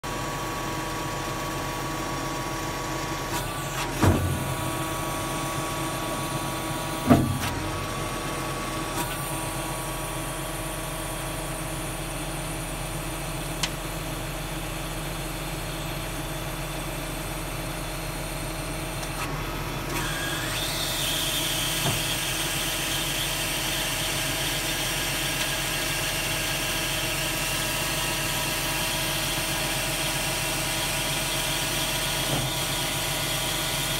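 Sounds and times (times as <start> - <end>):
tractor engine running: 0.1 - 20.0
loud clunks: 3.9 - 4.6, 7.0 - 7.6.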